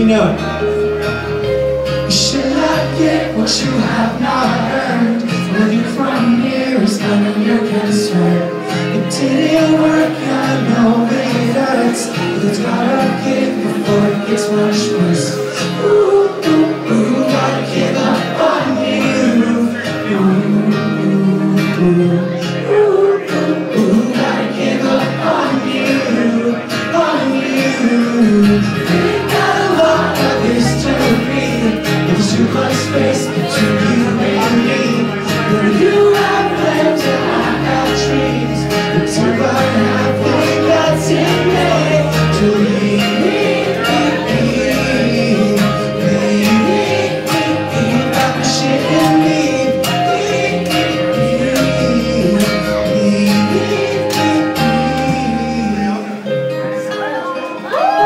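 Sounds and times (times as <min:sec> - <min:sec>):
electric guitar: 0:00.0 - 0:58.0
person singing: 0:00.0 - 0:58.0.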